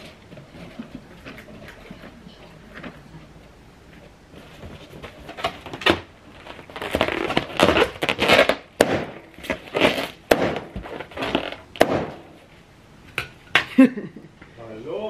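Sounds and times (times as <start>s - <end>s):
balloon rubber squeaking: 5.4s - 11.8s
balloons snapping: 5.4s - 12.4s.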